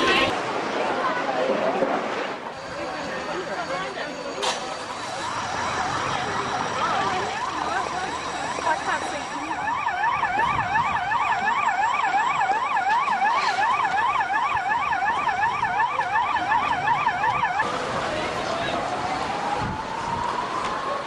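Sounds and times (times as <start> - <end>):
emergency siren yelping: 4.8 - 21.0.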